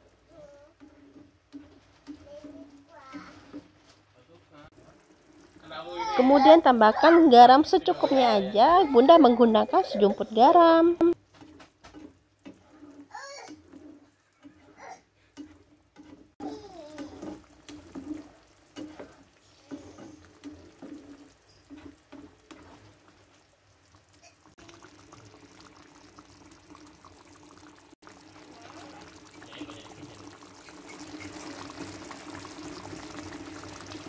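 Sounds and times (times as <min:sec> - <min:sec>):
spatula stirring thick sauce: 0:00.4 - 0:03.8, 0:04.7 - 0:08.1, 0:11.1 - 0:27.3
sauce bubbling: 0:04.7 - 0:10.4, 0:11.0 - 0:34.0.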